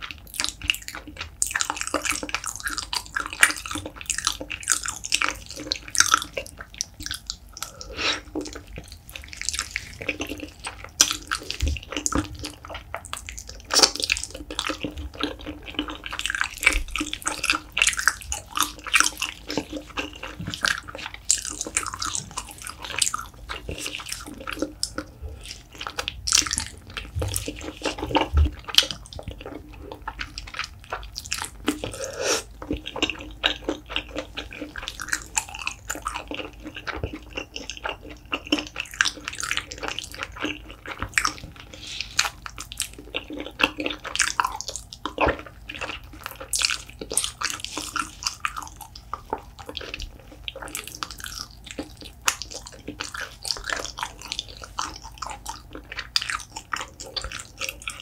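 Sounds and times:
wet sticky chewing: 0.0 - 58.0.

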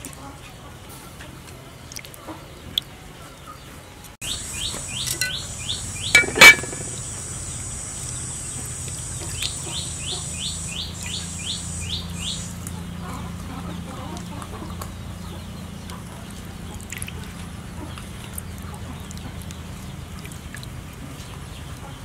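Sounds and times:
high insect drone: 4.2 - 12.6
small bird chirping: 4.2 - 12.9
loud short clink: 6.2 - 7.0.

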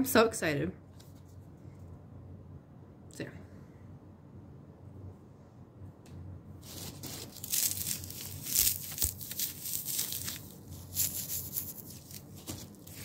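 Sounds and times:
foam packing peanuts crunching: 6.6 - 13.0.

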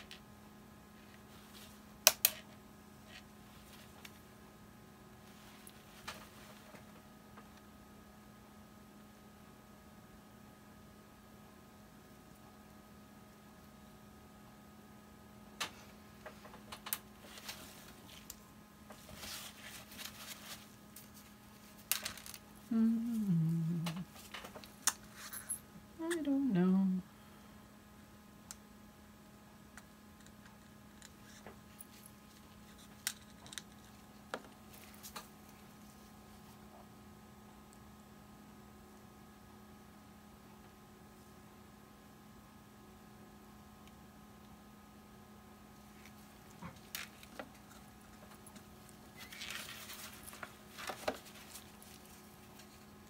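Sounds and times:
faint steady hum: 0.0 - 53.0
soft rustle: 17.2 - 21.9, 45.8 - 53.0.

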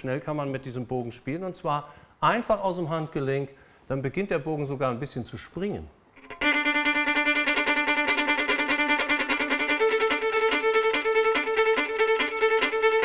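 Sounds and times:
solo violin rapid short notes: 6.2 - 13.0.

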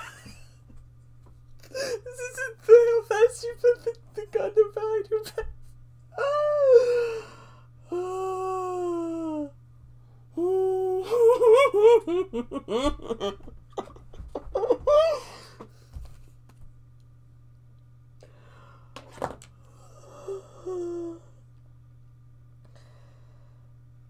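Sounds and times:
low electrical hum: 0.0 - 24.0
woman wailing: 6.1 - 7.2, 7.9 - 9.6, 10.4 - 13.3, 14.5 - 15.4, 20.0 - 21.3
woman squealing and giggling: 10.7 - 15.3.

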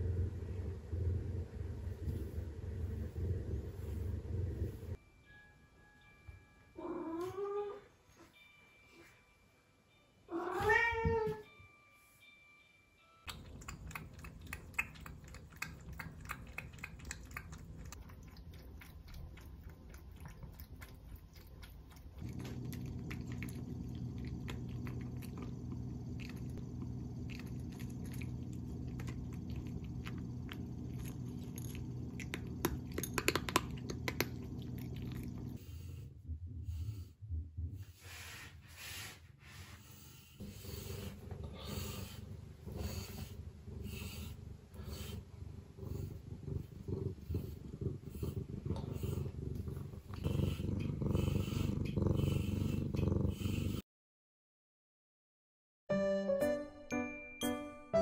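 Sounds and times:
steady low hum: 0.0 - 5.0, 13.3 - 38.7
cat crunching dry kibble: 13.3 - 35.6.

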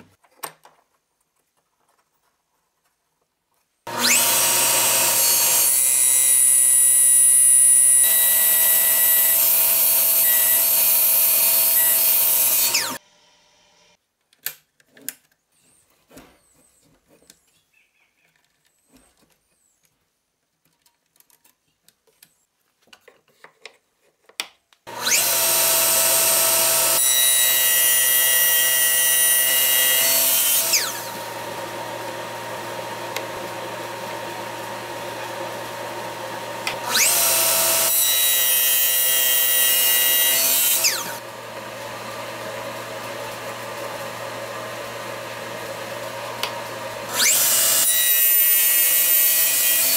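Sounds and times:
miter saw motor whining: 3.9 - 14.0, 24.9 - 49.9
small clicks and knocks: 18.2 - 24.9.

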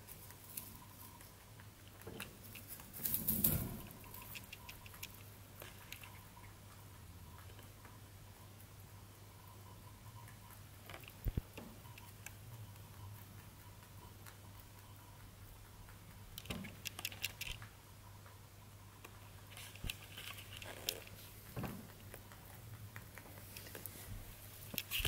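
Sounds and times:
rabbit rustling in hay: 2.6 - 4.4, 23.3 - 25.0.

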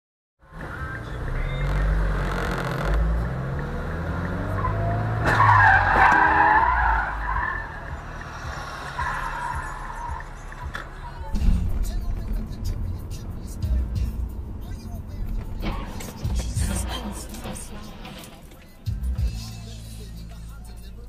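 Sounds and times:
car engine and road noise: 0.4 - 21.0
car tyres skidding and squealing: 0.6 - 11.3, 15.4 - 18.8.

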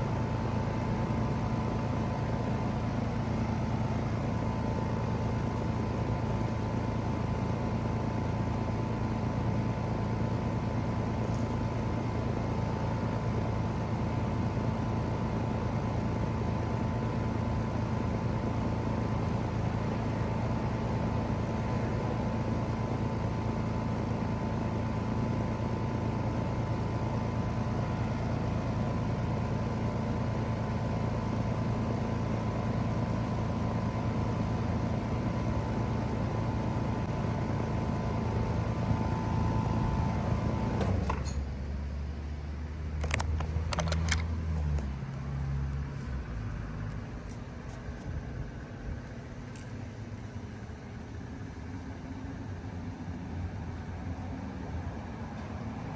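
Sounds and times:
heat pump compressor humming: 0.0 - 55.9
sharp clicks: 43.0 - 44.4.

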